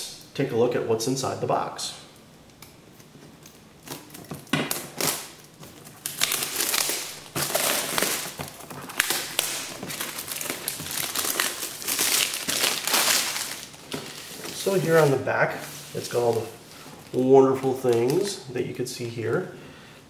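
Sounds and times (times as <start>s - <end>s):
plastic shrink wrap crinkling: 2.4s - 18.5s.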